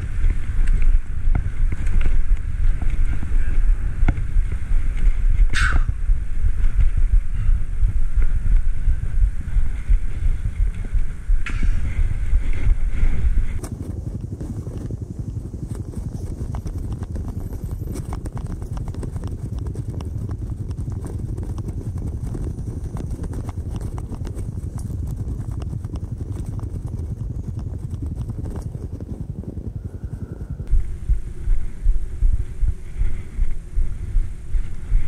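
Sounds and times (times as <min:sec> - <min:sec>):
wind buffeting microphone: 0:00.0 - 0:35.0
fast clicks and rattles: 0:07.8 - 0:30.7.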